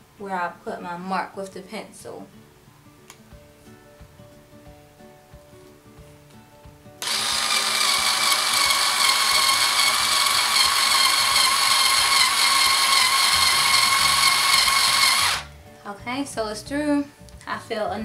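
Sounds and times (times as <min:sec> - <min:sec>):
cordless screwdriver drilling into wood: 0:07.0 - 0:15.5.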